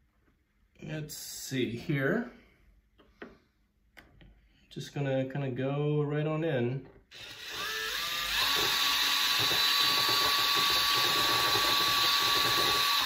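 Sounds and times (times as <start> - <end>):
cordless drill motor whining: 7.1 - 13.0
drill bit grinding rock: 7.1 - 13.0.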